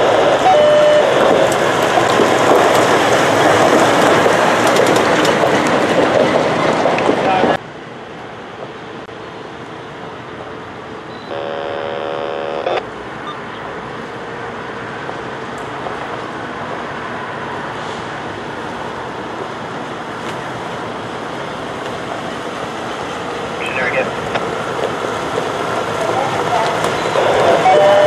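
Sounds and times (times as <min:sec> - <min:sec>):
truck horn: 0:00.0 - 0:01.2, 0:11.2 - 0:12.8, 0:27.1 - 0:28.0
diesel truck on gravel road: 0:00.0 - 0:07.6.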